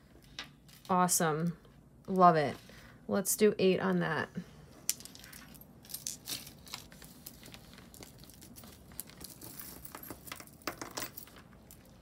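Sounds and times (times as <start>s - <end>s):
plastic bag crinkling: 5.9s - 10.6s.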